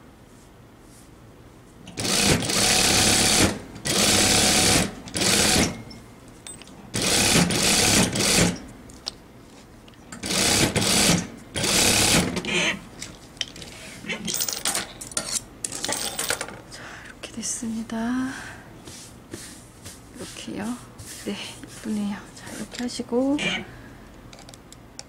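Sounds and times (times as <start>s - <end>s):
sewing machine stitching: 2.0s - 5.8s, 7.0s - 8.6s, 10.2s - 12.5s.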